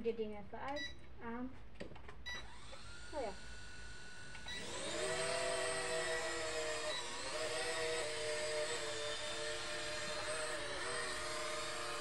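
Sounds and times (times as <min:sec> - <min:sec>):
toy jet motors whining: 0:02.4 - 0:12.0.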